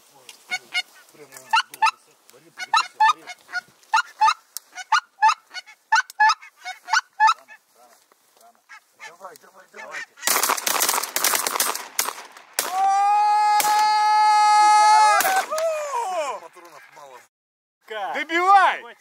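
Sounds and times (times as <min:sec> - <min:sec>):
geese honking: 0:00.4 - 0:07.7, 0:08.6 - 0:10.4, 0:16.5 - 0:17.3.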